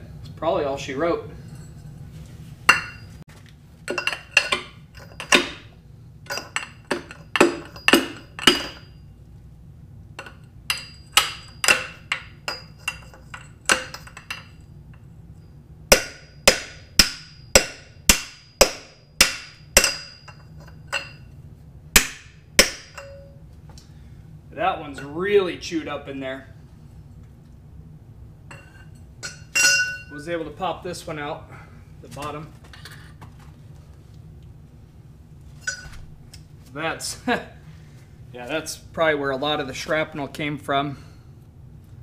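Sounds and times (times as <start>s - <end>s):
hammer striking steel bar: 6.3s - 9.0s, 10.2s - 14.5s, 15.9s - 21.2s, 22.0s - 23.4s, 28.5s - 30.1s.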